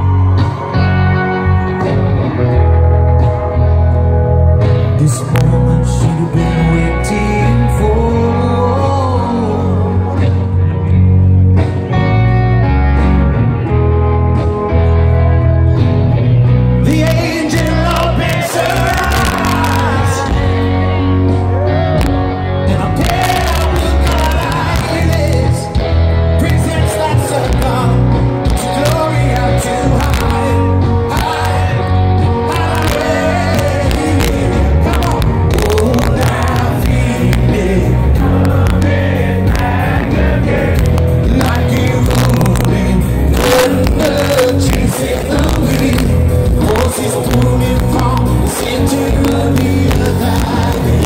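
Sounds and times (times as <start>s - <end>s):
rock band playing live: 0.0s - 51.0s
man singing: 4.7s - 10.9s, 16.8s - 51.0s.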